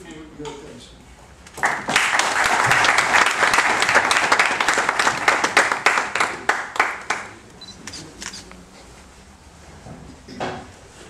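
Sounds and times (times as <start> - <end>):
audience applauding: 1.5 - 7.4.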